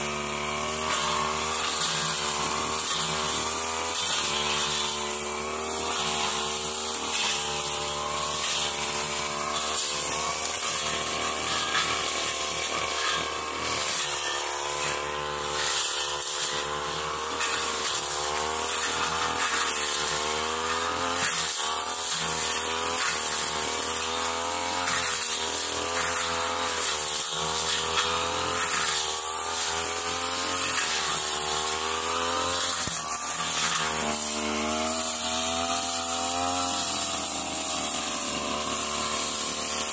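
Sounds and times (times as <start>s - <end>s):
brush cutter cutting grass: 0.0s - 39.9s.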